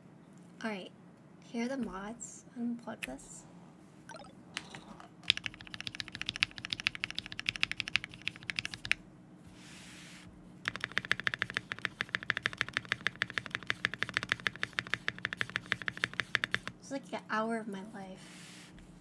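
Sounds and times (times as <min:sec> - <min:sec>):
mechanical keyboard typing: 0:04.6 - 0:09.0, 0:10.6 - 0:16.8.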